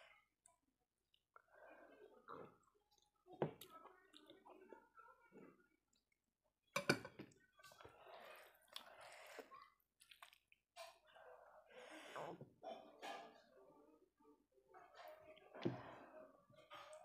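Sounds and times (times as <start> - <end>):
wet squishing of food mixed by hand: 0.5 - 11.0.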